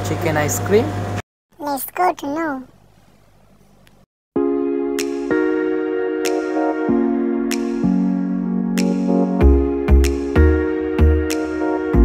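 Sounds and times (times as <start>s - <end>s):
electronic music with kick drum: 4.4s - 12.0s.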